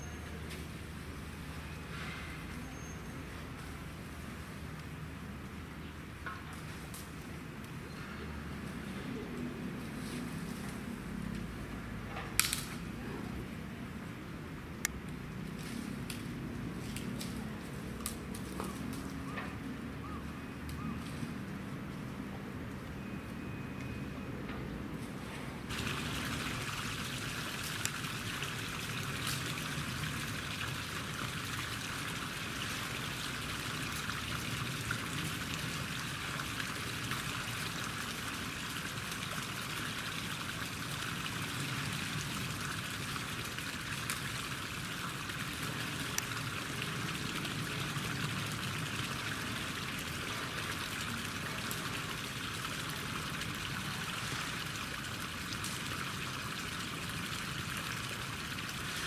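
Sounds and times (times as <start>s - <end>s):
running water rushing: 25.7s - 59.0s.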